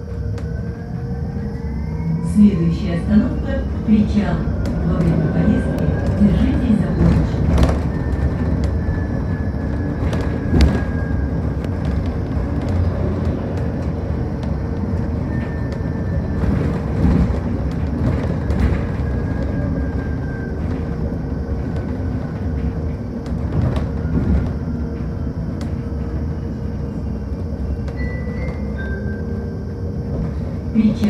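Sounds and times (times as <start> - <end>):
bus cabin knocks and rattles: 4.1 - 26.8.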